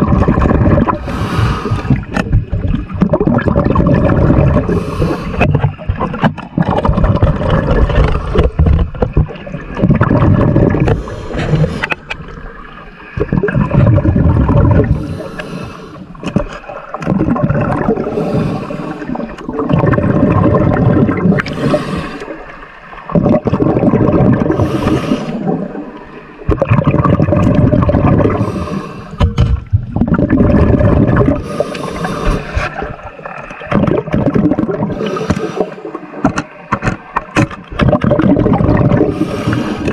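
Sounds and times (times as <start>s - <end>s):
exhaled bubbles gushing: 0.0s - 15.3s, 16.2s - 39.9s
scuba regulator inhale hiss: 1.0s - 1.9s, 4.7s - 5.4s, 14.9s - 16.1s, 18.1s - 19.2s, 21.4s - 22.3s, 24.5s - 25.5s, 28.4s - 29.2s, 31.4s - 32.7s, 34.9s - 35.9s, 39.1s - 39.9s.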